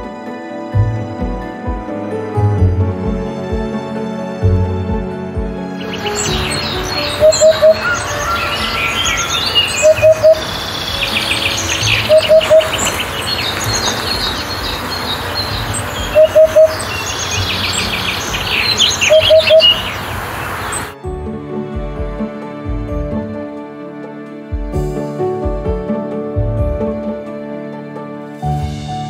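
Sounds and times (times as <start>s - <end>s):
songbirds chirping: 5.6s - 21.0s
hoopoe hooting: 5.8s - 20.9s.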